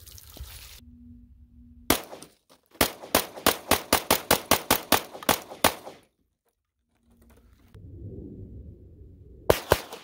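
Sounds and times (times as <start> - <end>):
pistol firing rapidly: 1.9 - 2.2, 2.8 - 6.0.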